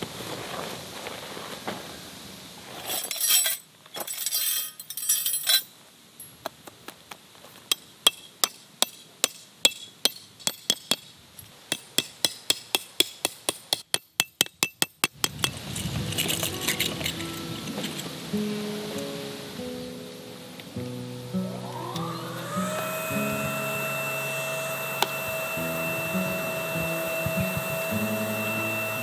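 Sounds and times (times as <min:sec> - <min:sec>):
rustling: 0:00.0 - 0:08.4, 0:15.1 - 0:22.6
hammer striking metal tent stakes: 0:07.7 - 0:17.3
music: 0:15.8 - 0:29.0.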